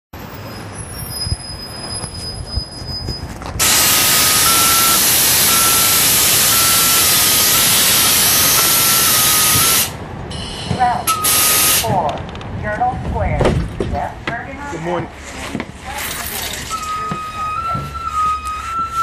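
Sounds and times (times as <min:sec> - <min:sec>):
bus running: 0:00.2 - 0:19.0
loud rushing hiss with whistle: 0:03.6 - 0:11.9.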